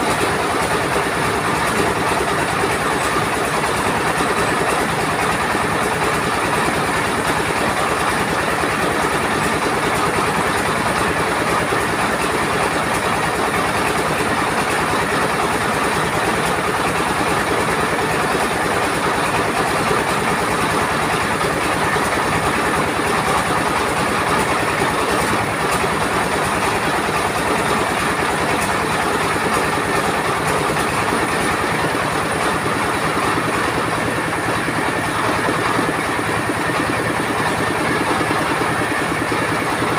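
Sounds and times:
milling machinery clatter: 0:00.0 - 0:39.9
stationary engine pulsing: 0:20.1 - 0:39.9.

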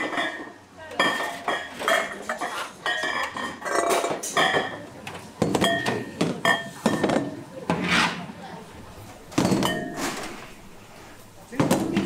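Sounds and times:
ceramic bowls clinking on metal: 0:00.0 - 0:07.4, 0:09.3 - 0:10.5.

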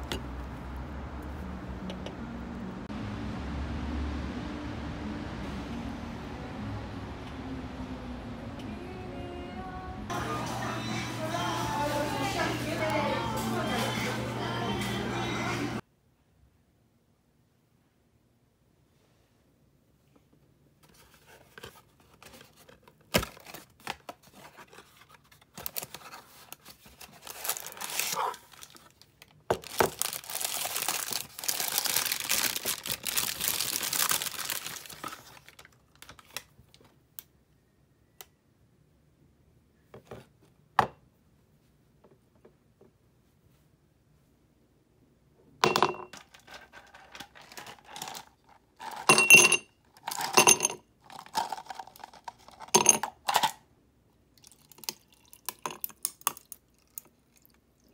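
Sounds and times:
paper crinkling and tearing: 0:21.4 - 0:36.5, 0:46.3 - 0:49.0
ice cubes clinking in glass: 0:47.6 - 0:53.5, 0:54.4 - 0:56.5.

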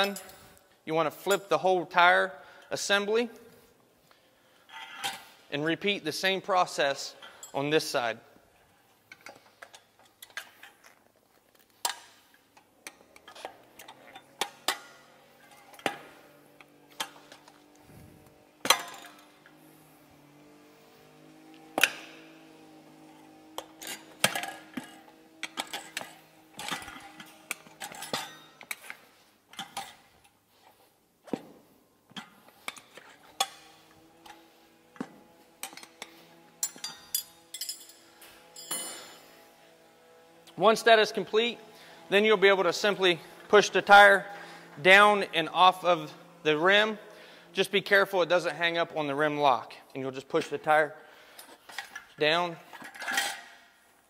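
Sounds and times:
tire irons clinking on metal rim: 0:23.0 - 0:30.0, 0:35.6 - 0:39.3.

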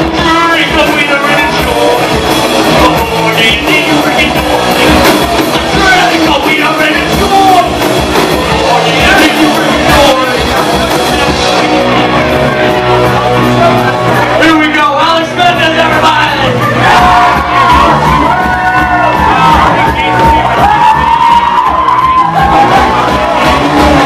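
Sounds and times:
person singing: 0:00.0 - 0:12.4
drums: 0:00.0 - 0:24.0
electric guitars: 0:00.0 - 0:24.0.

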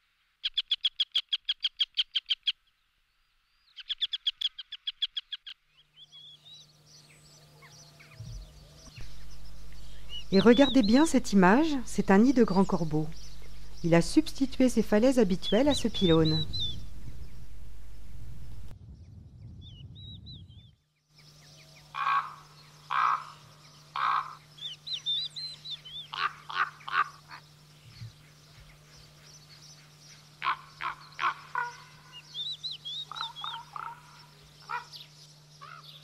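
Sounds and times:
small birds twittering: 0:00.4 - 0:36.0
raven croaking: 0:21.9 - 0:24.5, 0:30.4 - 0:32.2, 0:33.0 - 0:35.0.

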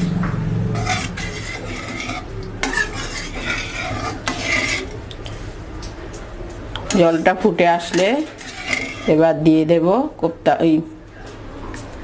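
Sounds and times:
metal ladle scraping a wok: 0:00.7 - 0:05.0, 0:06.9 - 0:09.4.

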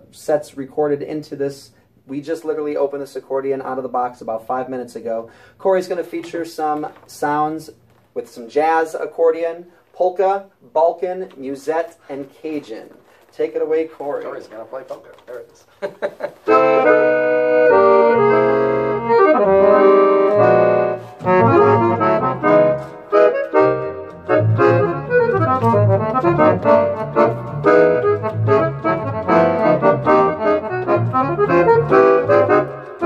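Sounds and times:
accordion playing polka: 0:16.5 - 0:33.0.

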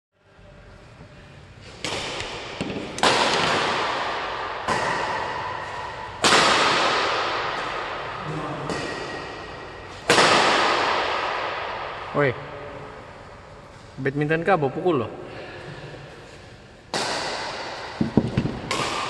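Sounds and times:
rackets striking shuttlecock: 0:01.7 - 0:12.0, 0:16.8 - 0:19.0.

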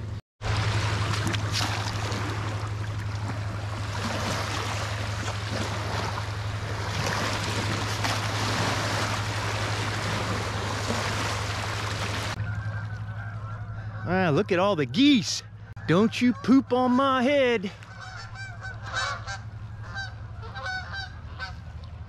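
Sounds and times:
low hum: 0:00.0 - 0:17.0, 0:17.6 - 0:22.0
waves washing at river's edge: 0:00.4 - 0:12.4.

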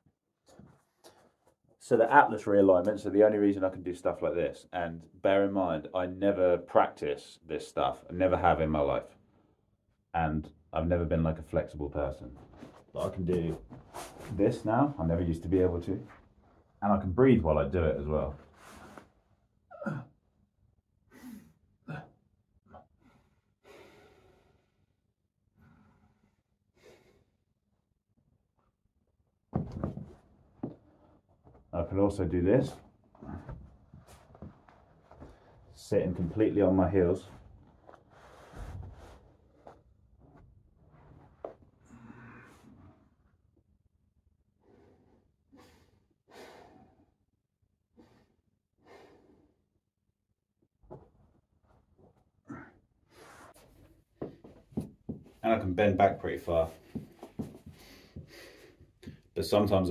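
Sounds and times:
man breathing slowly: 0:23.0 - 0:24.9, 0:25.6 - 0:27.4, 0:41.8 - 0:43.0, 0:44.6 - 0:47.2, 0:47.9 - 0:49.6, 0:56.8 - 0:59.2
person breathing: 0:56.8 - 0:59.2.

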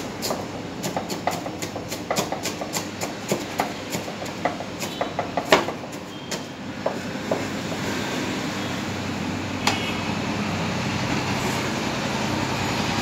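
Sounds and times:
steady background noise: 0:00.0 - 0:13.0
knife chopping on cutting board: 0:00.2 - 0:07.5.

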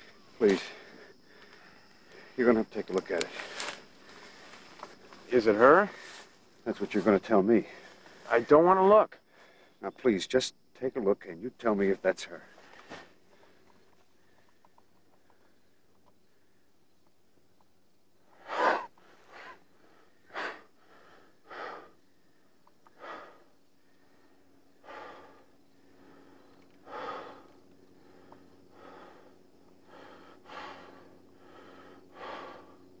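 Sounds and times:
man panting and gasping: 0:18.4 - 0:22.0, 0:22.8 - 0:33.0.

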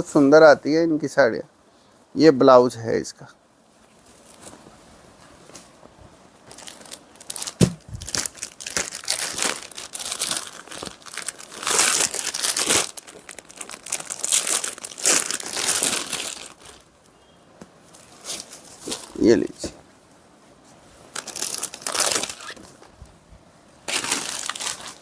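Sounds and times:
plastic packet crinkling: 0:06.5 - 0:16.9, 0:21.1 - 0:22.6, 0:23.9 - 0:25.0.

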